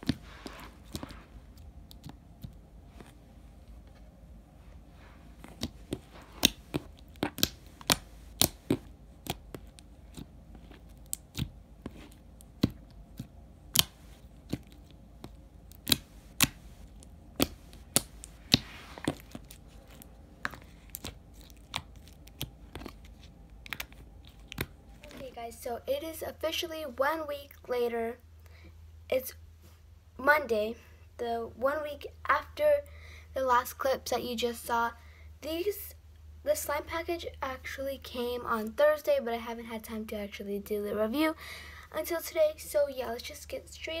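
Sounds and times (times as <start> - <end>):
slime squishing with wet pops: 0.0 - 3.2, 5.4 - 25.3.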